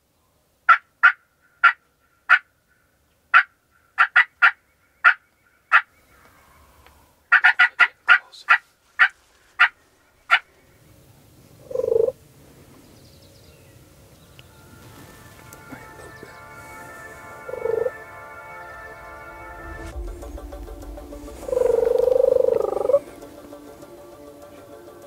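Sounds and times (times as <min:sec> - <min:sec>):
turkey yelps: 0:00.7 - 0:06.6, 0:07.3 - 0:10.5
turkey low call: 0:00.7 - 0:10.8, 0:14.4 - 0:19.4, 0:21.4 - 0:23.5.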